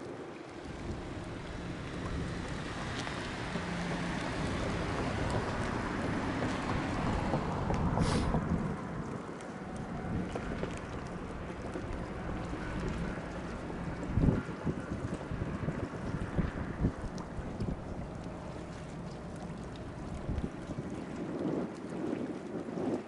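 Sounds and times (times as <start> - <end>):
low boat engine hum: 0.0 - 23.0
water washing against hull: 0.0 - 23.0
wind on microphone: 0.0 - 23.0
short sharp hiss: 8.0 - 8.3.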